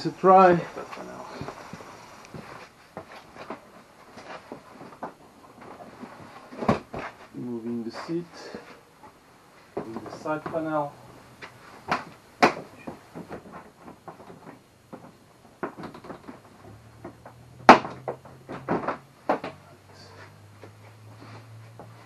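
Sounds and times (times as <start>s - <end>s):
plastic panels knocking: 11.8s - 19.6s.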